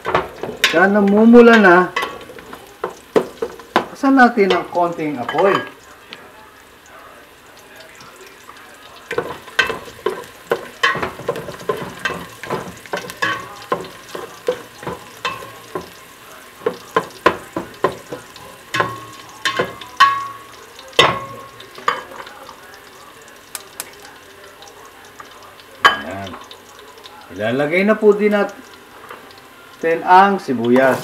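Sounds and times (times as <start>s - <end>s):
garlic sizzling in oil: 0.0s - 31.0s
spoon scraping and knocking pot: 9.1s - 16.0s.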